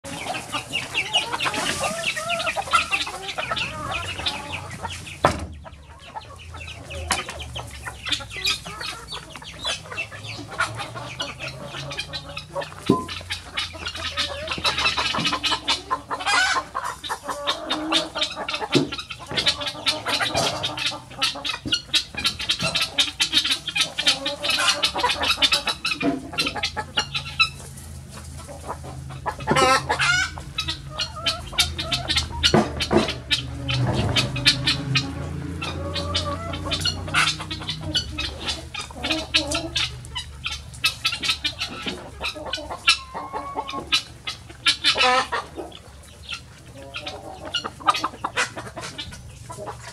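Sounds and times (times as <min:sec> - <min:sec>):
hens clucking: 0:00.0 - 0:49.9.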